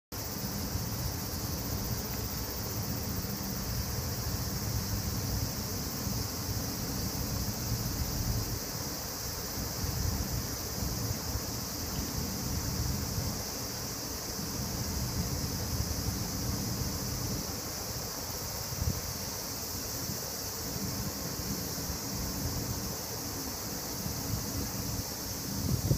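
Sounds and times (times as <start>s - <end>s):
steady high-pitched hiss: 0.1s - 25.9s
wind buffeting microphone: 9.5s - 13.5s, 24.0s - 25.9s.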